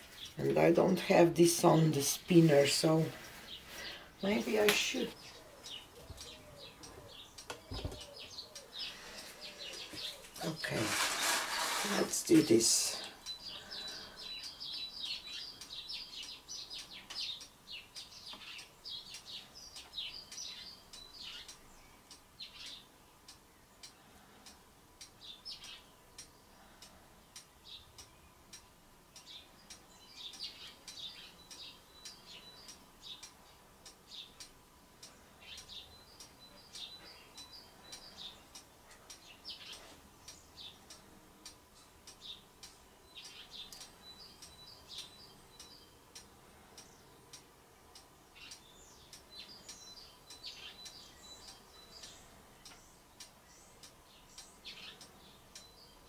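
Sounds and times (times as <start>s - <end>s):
small birds chirping: 0.0s - 56.0s
faint steady tone: 19.4s - 56.0s.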